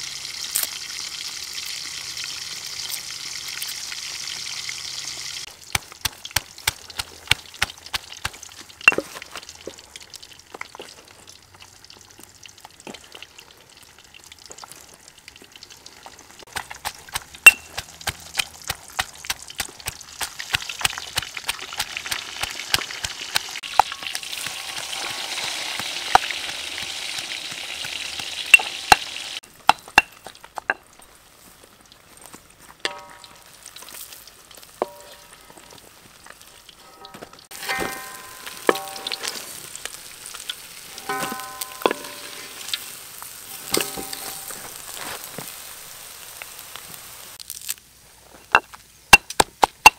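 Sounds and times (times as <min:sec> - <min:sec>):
pestle pounding in stone mortar: 0:05.7 - 0:09.0, 0:16.5 - 0:29.1
steady hiss: 0:37.6 - 0:48.2.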